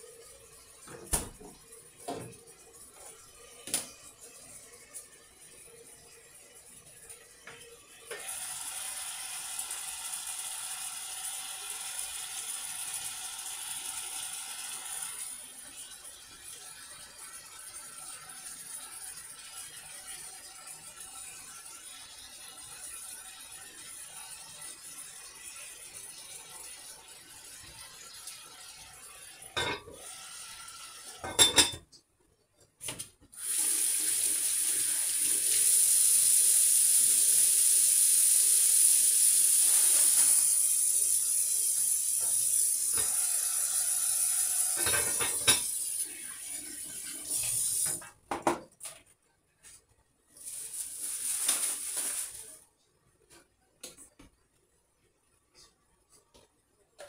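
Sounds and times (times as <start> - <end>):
dishes clinking: 29.6 - 30.0, 31.2 - 31.9, 44.8 - 45.7.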